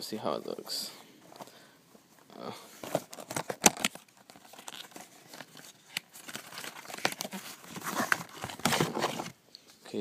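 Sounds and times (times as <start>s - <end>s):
package tearing and crinkling: 3.0s - 9.3s.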